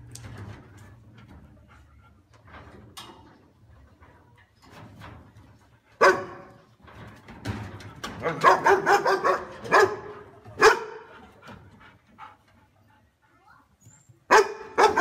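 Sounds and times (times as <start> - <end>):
dog barking: 6.0 - 6.5, 8.2 - 11.1, 14.3 - 15.0.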